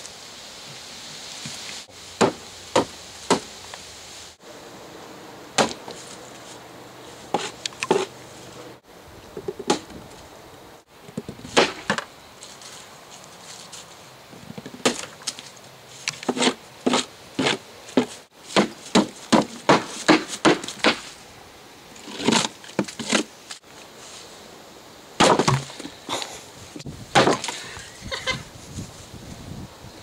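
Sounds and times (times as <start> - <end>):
hammer smashing apples on wood: 2.2 - 3.5, 5.6 - 6.0, 11.5 - 12.0, 14.8 - 15.2, 16.2 - 21.1, 25.2 - 25.8, 27.1 - 27.6.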